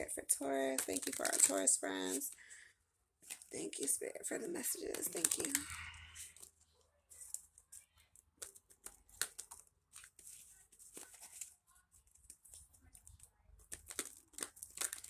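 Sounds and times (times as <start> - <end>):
cards being shuffled: 4.8 - 5.6, 7.1 - 15.0.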